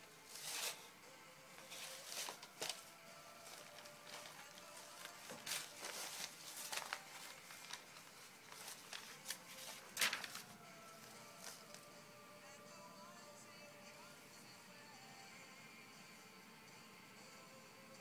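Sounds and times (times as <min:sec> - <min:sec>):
paper rustling and crinkling: 0:00.2 - 0:00.9, 0:01.6 - 0:11.9.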